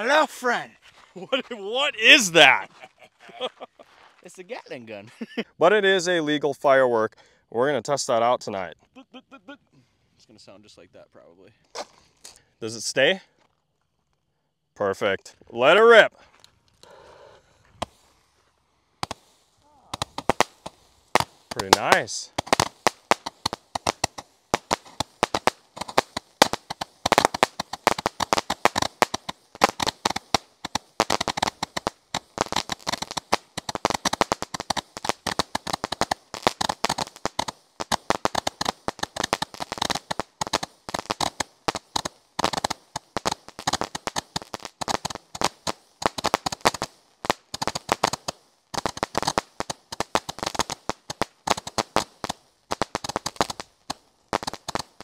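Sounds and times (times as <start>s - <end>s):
firework bangs and crackling pops: 1.4s - 2.7s, 11.7s - 12.5s, 17.7s - 18.3s, 19.0s - 55.0s.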